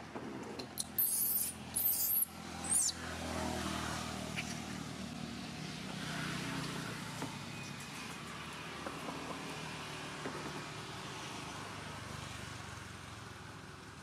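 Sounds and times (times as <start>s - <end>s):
baby monkey crying: 0.8s - 3.0s.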